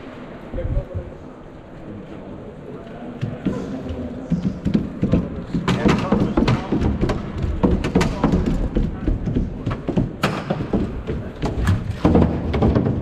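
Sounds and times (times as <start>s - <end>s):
people talking: 0.0s - 11.7s
robot feet thumping and clattering: 3.2s - 13.0s.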